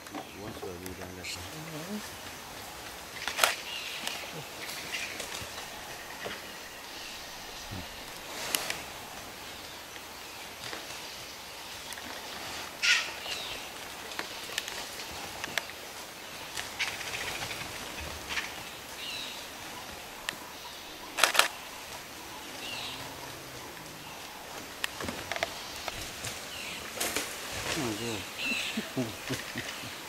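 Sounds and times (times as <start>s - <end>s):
outdoor hush: 0.0s - 30.0s
vultures harsh calls: 12.4s - 13.7s, 16.6s - 30.0s.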